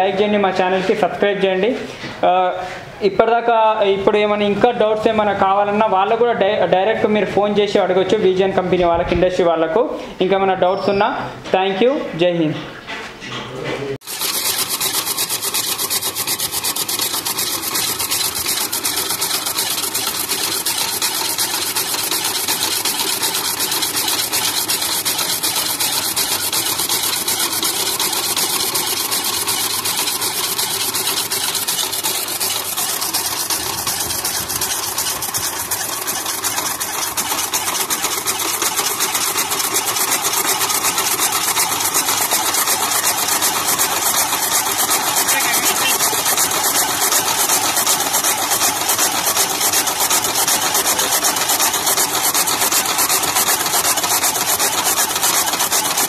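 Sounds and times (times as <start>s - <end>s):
chaff cutter clattering: 14.0s - 56.0s.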